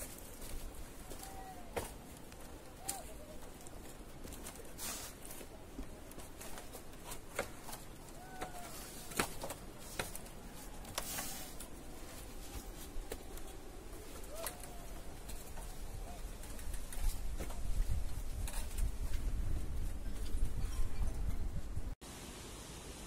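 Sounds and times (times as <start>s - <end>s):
clothing brushing against rock: 0.0s - 14.4s
hands gripping wooden poles: 0.0s - 20.6s.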